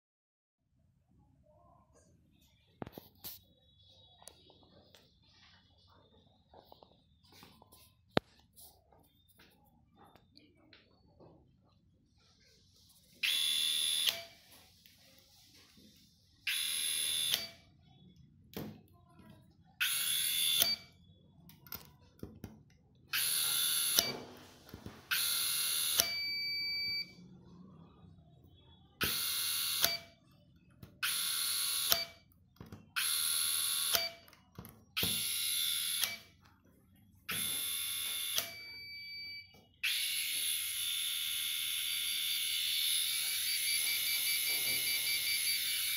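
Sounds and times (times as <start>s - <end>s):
electric screwdriver motor whining: 16.5s - 17.5s, 33.0s - 34.2s, 37.3s - 38.7s, 39.8s - 45.9s.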